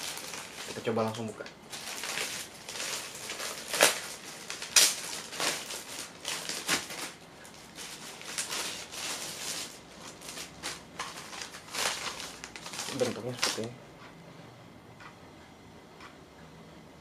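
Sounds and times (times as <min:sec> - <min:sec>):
plastic bag crinkling: 0:00.0 - 0:13.8.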